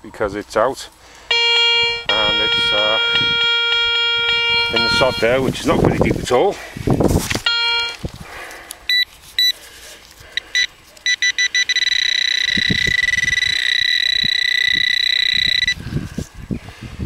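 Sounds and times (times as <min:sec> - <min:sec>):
metal detector beeping: 0:01.3 - 0:05.8, 0:07.3 - 0:08.0, 0:08.9 - 0:09.6, 0:10.3 - 0:15.8.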